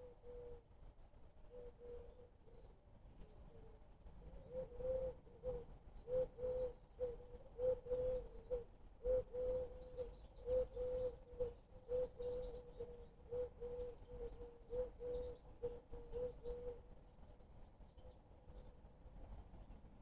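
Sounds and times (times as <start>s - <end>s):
pigeon cooing: 0.0s - 0.6s, 3.5s - 16.8s.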